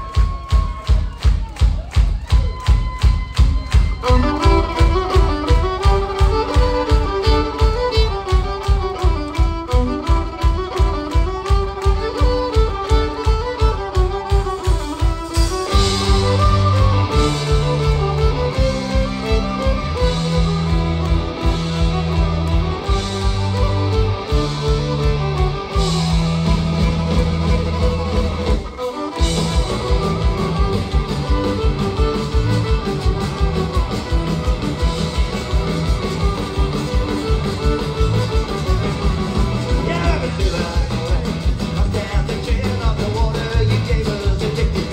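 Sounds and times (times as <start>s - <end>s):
bass guitar: 0.0s - 44.9s
fiddle melody: 3.0s - 43.8s.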